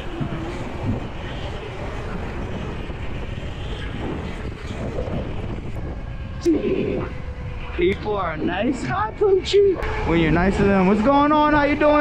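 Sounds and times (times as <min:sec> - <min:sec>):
tyre noise on street: 0:00.0 - 0:12.0
wind rushing over microphone: 0:00.0 - 0:12.0.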